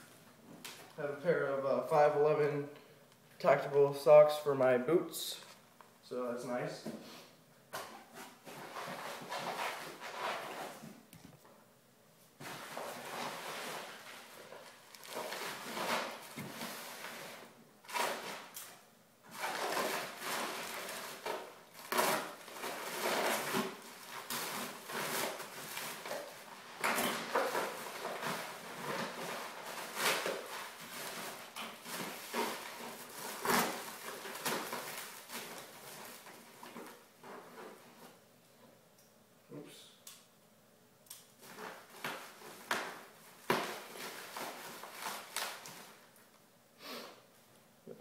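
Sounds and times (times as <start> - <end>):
packaging rustling and crinkling: 12.4 - 18.5, 19.3 - 38.2, 41.4 - 46.2.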